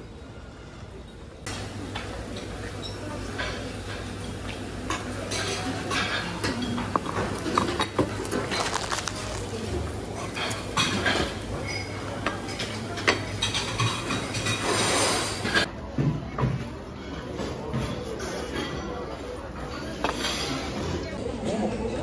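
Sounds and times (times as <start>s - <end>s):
dishes and cutlery clinking: 4.9s - 15.7s.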